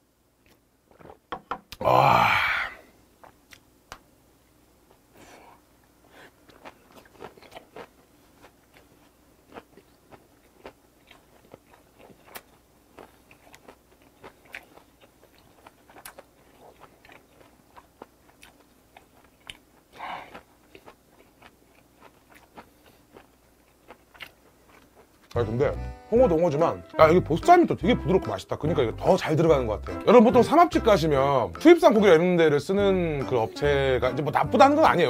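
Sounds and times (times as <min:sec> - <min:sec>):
breath out: 0:01.8 - 0:02.9
wet chewing and crunching: 0:06.3 - 0:25.4.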